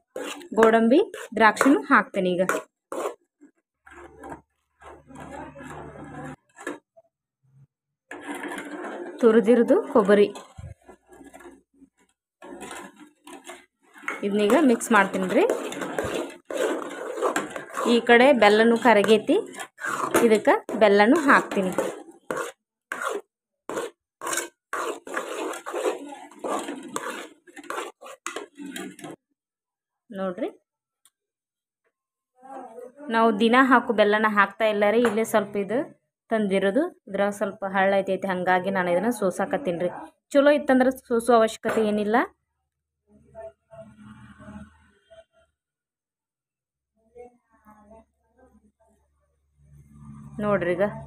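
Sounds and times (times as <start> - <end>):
spatula scraping in a metal pan: 0.0 - 7.0, 8.1 - 29.2, 43.7 - 45.4, 49.6 - 51.0.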